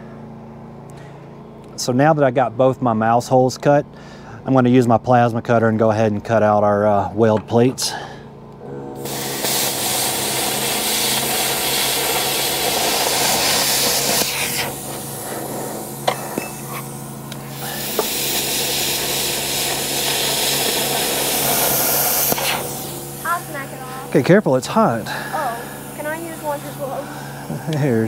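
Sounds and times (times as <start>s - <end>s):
plasma cutter hissing: 9.0s - 28.0s.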